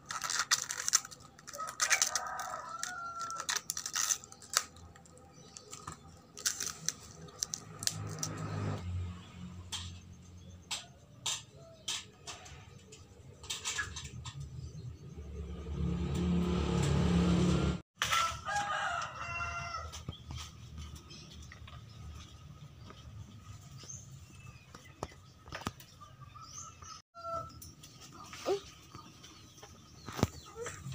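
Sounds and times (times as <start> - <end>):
sharp clicks and rustles: 0.0 - 8.8
rooster crowing: 1.5 - 3.6, 18.0 - 20.0.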